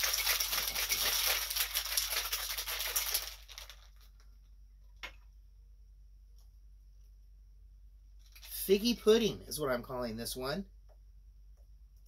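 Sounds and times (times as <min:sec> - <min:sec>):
ice rattling in cocktail shaker: 0:00.0 - 0:04.1.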